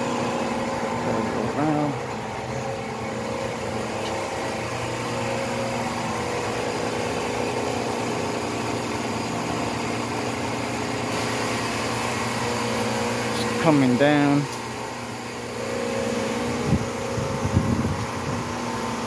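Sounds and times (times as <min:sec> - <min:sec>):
hydraulic pump humming: 0:00.0 - 0:19.0.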